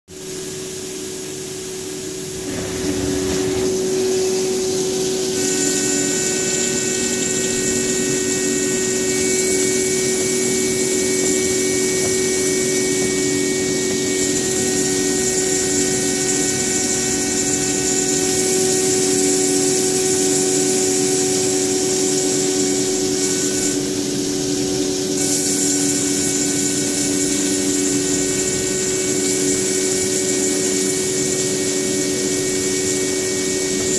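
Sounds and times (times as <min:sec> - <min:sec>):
machine spindle hum: 0:00.3 - 0:33.9
coolant spraying hiss: 0:01.3 - 0:15.2.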